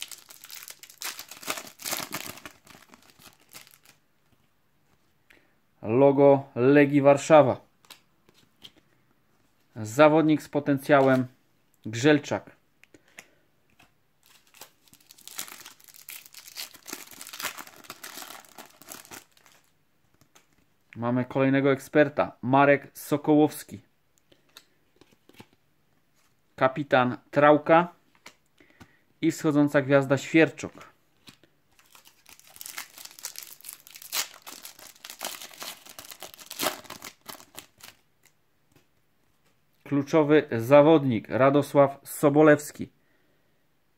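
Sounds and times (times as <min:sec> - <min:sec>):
foil packet crinkling: 0:00.0 - 0:04.0, 0:14.2 - 0:19.7, 0:31.8 - 0:38.3.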